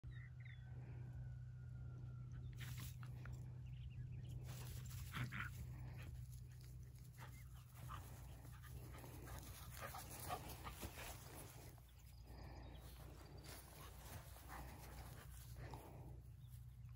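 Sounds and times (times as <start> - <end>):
low hum: 0.0 - 16.9.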